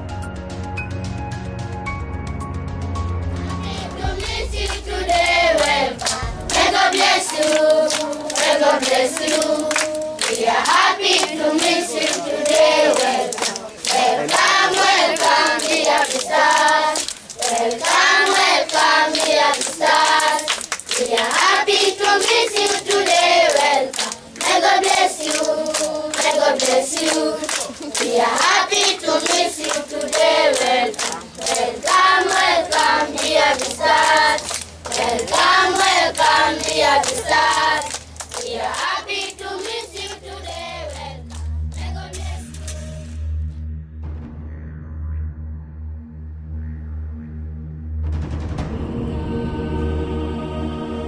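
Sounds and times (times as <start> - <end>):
background music with low drone: 0.0 - 51.0
children singing together: 3.6 - 42.8, 49.1 - 51.0
rhythmic hand clapping: 3.6 - 43.1.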